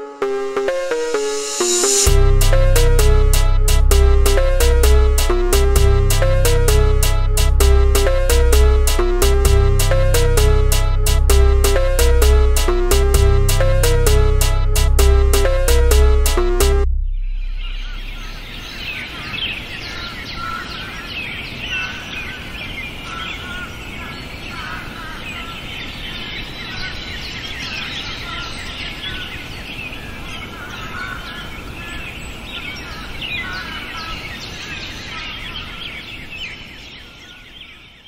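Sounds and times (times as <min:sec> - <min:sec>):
low outdoor background: 0:00.0 - 0:19.7.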